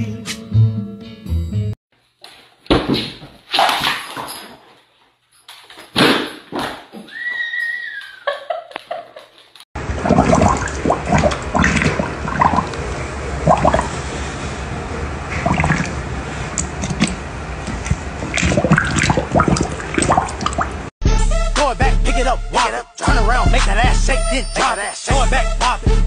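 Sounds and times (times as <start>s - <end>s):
dog lapping water from bowl: 9.8s - 12.8s, 13.4s - 13.9s, 15.4s - 16.0s, 16.6s - 20.8s.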